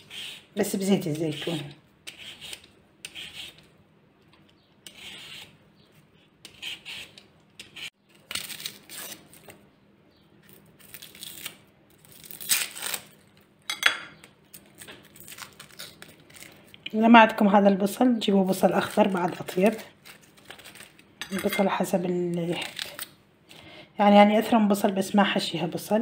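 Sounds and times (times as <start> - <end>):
peeler scraping potato skin: 0.0 - 3.7, 4.8 - 9.6, 14.5 - 16.6
onion skin crackling: 6.2 - 9.6, 10.5 - 13.4, 14.2 - 16.9, 18.4 - 21.1, 22.2 - 23.2.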